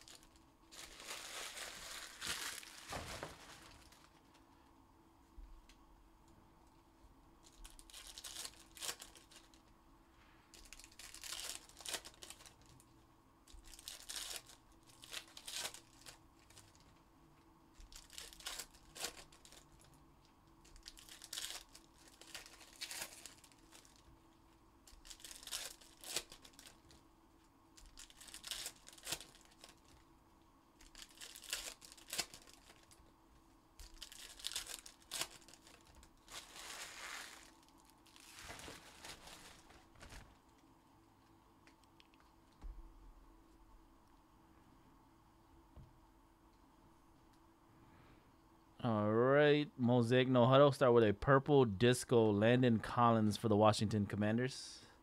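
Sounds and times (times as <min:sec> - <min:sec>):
foil wrappers tearing and crinkling: 0:00.0 - 0:04.2, 0:07.4 - 0:09.6, 0:10.5 - 0:12.8, 0:13.5 - 0:16.8, 0:17.8 - 0:19.9, 0:20.6 - 0:24.1, 0:24.8 - 0:27.0, 0:27.8 - 0:30.0, 0:30.8 - 0:33.0, 0:33.8 - 0:40.4.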